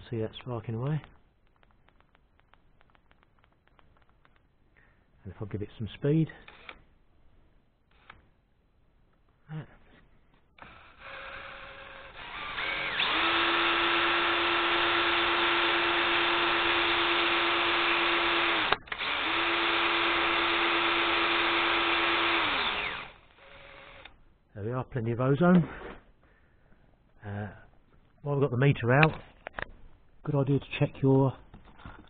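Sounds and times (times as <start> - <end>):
electric drill motor whine: 6.5 - 6.8, 10.6 - 24.1.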